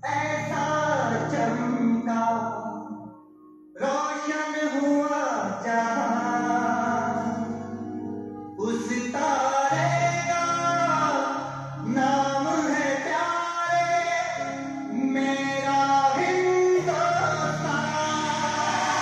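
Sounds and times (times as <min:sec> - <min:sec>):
singing over instrumental music: 0:08.6 - 0:19.0.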